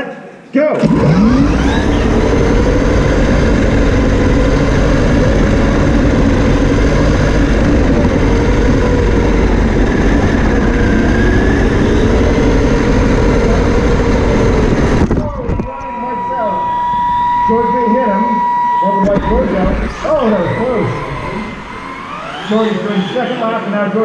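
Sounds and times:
rumble of running car: 0.8s - 15.6s
electric motor whine: 0.8s - 23.7s.

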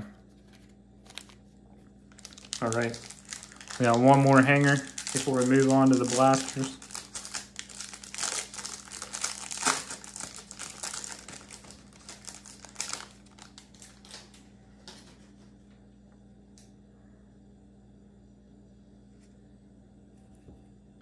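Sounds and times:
plastic wrapper crinkling: 0.4s - 1.5s, 2.1s - 15.0s.

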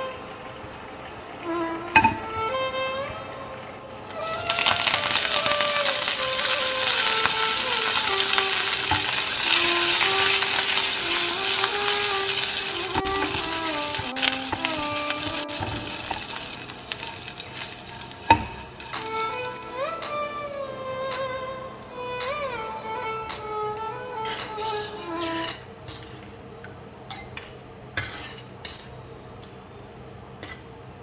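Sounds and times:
food sizzling in hot oil: 4.0s - 21.2s.

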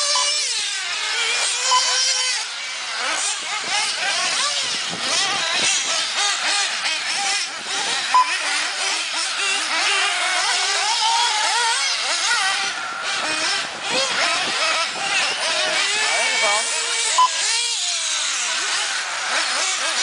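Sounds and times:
small engines revving: 0.0s - 20.0s
short high beep: 8.1s - 8.4s, 17.2s - 17.4s.

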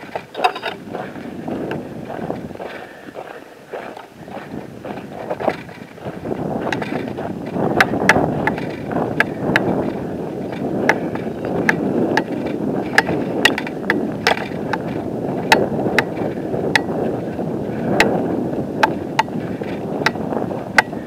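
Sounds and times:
footsteps on loose rocks: 0.0s - 21.0s.

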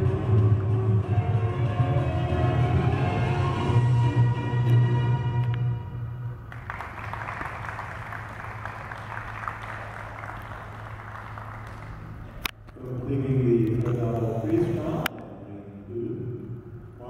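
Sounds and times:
music: 0.0s - 7.2s
spectators applauding: 6.5s - 12.4s.

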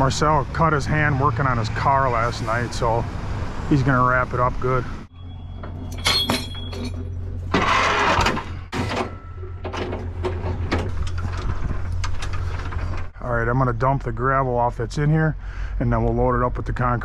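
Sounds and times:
metallic clanks and rattles: 5.5s - 13.2s.

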